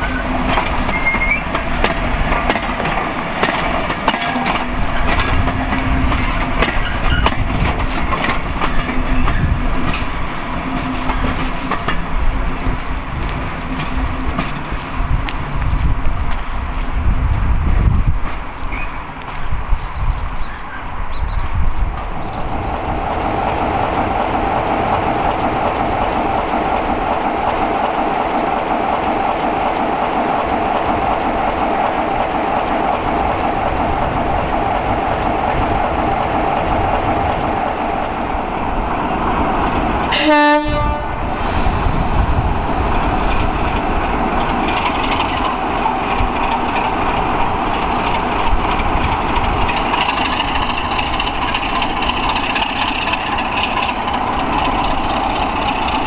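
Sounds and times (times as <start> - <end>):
diesel locomotive engine running: 0.0 - 56.0
locomotive horn blast: 40.1 - 41.2.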